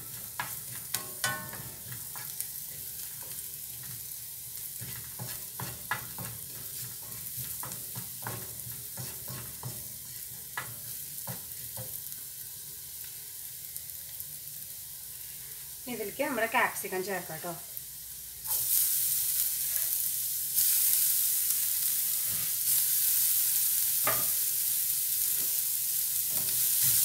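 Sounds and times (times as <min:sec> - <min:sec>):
spatula scraping a pan: 0:00.0 - 0:12.1, 0:26.3 - 0:27.0
food sizzling in hot oil: 0:00.0 - 0:27.0.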